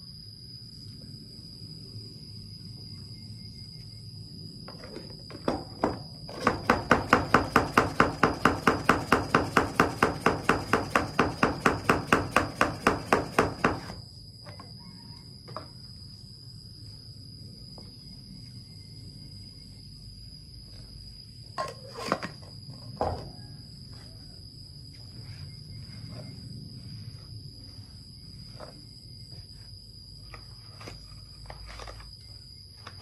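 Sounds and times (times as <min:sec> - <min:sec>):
high insect trill: 0:00.0 - 0:33.0
knocks: 0:05.3 - 0:08.8.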